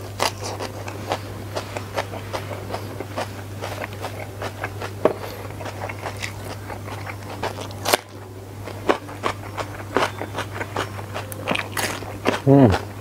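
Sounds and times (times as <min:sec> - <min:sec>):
chewing food: 0:00.0 - 0:13.0.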